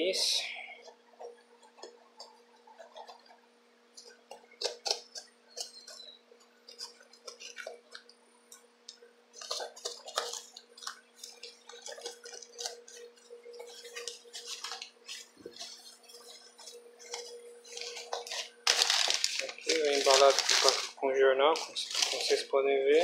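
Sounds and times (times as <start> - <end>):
crumpled newspaper rustling: 9.3 - 23.0
cardboard and tape tearing: 17.8 - 22.4.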